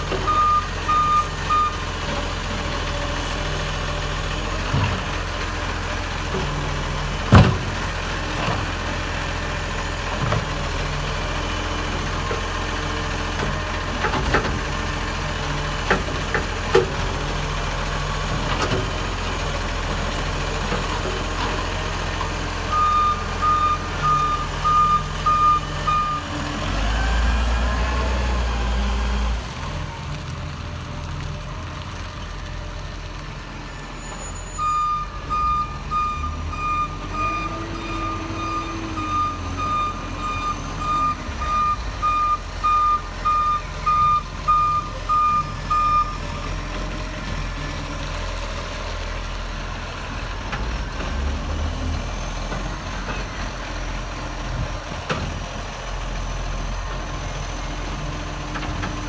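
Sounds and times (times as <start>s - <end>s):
reversing alarm beeps: 0.3s - 1.8s, 22.7s - 26.2s, 34.5s - 46.2s.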